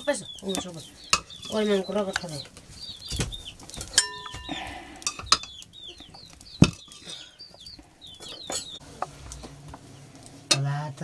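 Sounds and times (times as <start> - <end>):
chickens calling: 0.0 - 10.5
metal spoon knocking on pots: 0.5 - 2.4, 3.8 - 5.6, 6.6 - 7.2.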